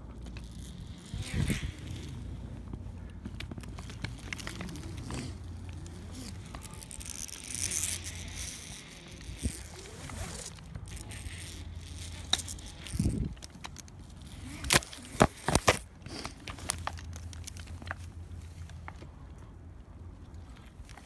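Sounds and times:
fir branches rustling: 0.0s - 19.1s.

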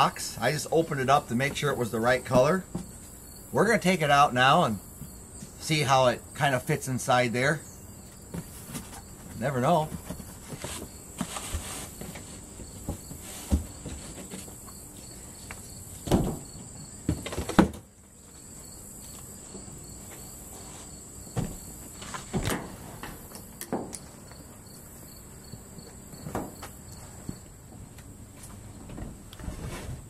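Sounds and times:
insects chirping: 0.0s - 28.8s
cardboard and carpet rustling: 8.3s - 15.1s.

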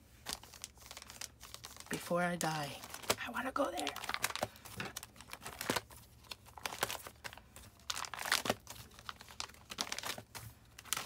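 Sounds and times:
plastic sleeves crinkling: 0.0s - 11.0s.

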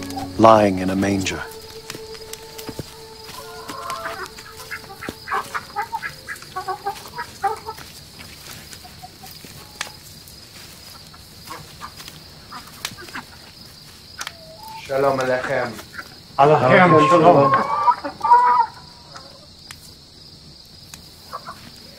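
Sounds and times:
steady high background tone: 0.0s - 7.4s
chickens clucking: 1.5s - 7.9s.

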